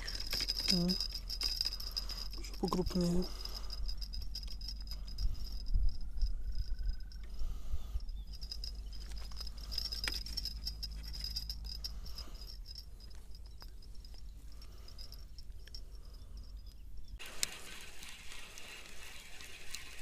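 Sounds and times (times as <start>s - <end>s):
wind rumble on microphone: 3.8s - 9.2s.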